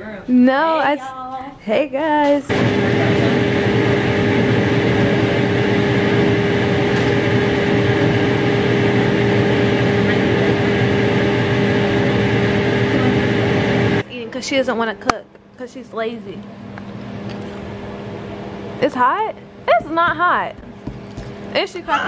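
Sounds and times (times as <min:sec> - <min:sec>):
range hood fan whooshing: 0:02.4 - 0:22.0.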